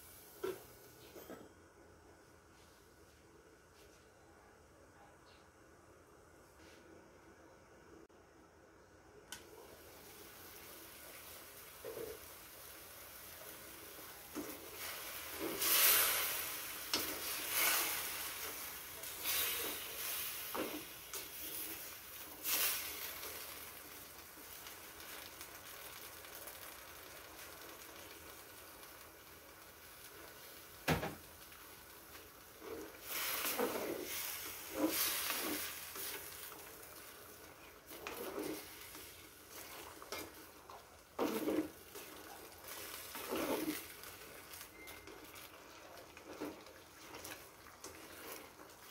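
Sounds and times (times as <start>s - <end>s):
food sizzling in a wok: 0.0s - 1.0s, 9.5s - 48.9s
spatula scraping a wok: 14.3s - 23.5s, 32.6s - 37.1s, 37.9s - 45.4s.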